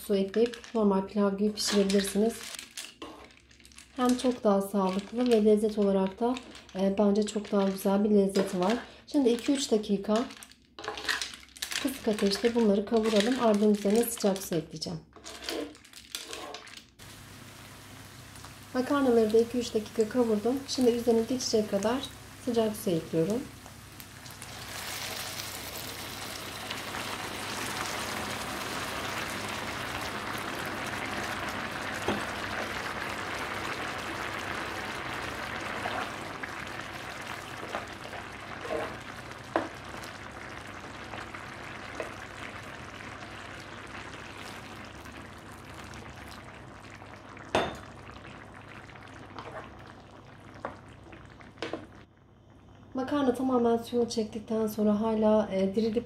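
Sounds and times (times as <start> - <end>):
water sizzling in a skillet: 16.2 - 52.1.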